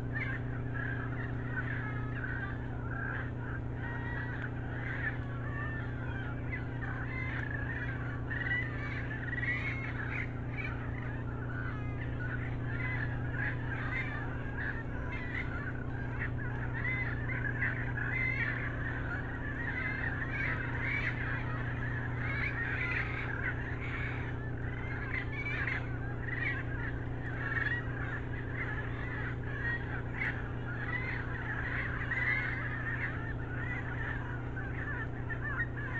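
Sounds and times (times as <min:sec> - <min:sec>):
chorus of wavering animal calls: 0:00.0 - 0:35.9
low electrical hum: 0:00.0 - 0:35.9.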